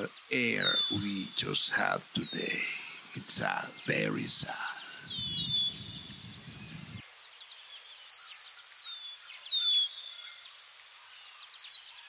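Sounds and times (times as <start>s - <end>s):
insects chirping: 0.0s - 12.0s
bird whistling: 2.7s - 7.0s.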